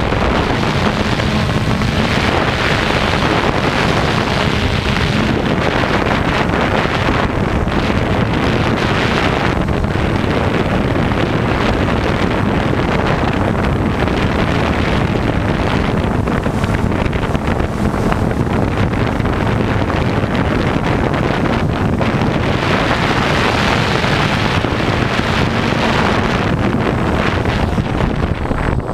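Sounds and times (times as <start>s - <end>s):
drone propellers whirring: 0.0s - 20.2s, 21.1s - 28.9s
wind noise on microphone: 0.0s - 28.9s.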